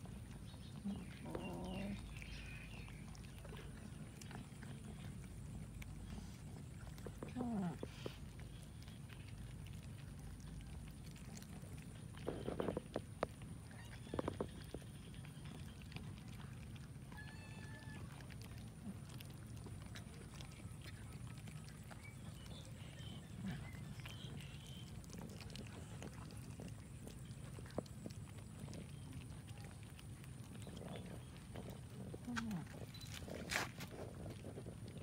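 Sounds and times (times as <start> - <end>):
cats chewing and licking: 0.0 - 35.0.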